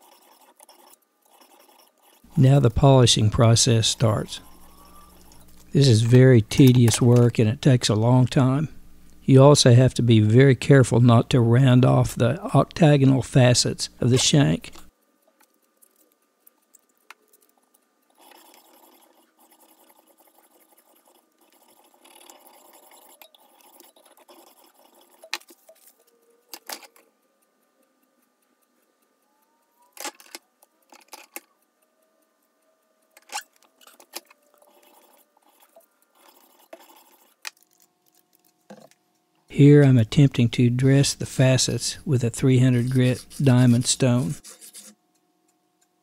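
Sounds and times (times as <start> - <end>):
abrasive rubbing on steel: 42.3 - 45.0.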